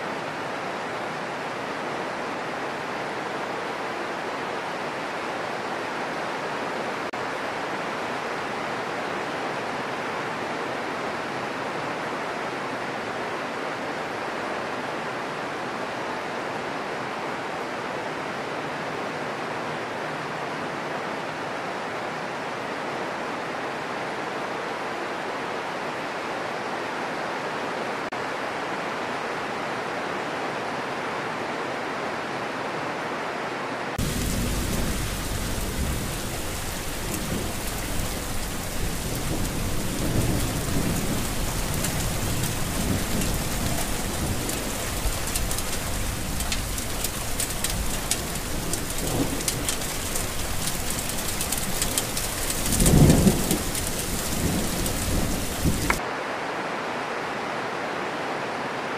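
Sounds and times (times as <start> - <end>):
rain hissing: 34.0 - 56.0
thunder rumbling: 34.0 - 56.0.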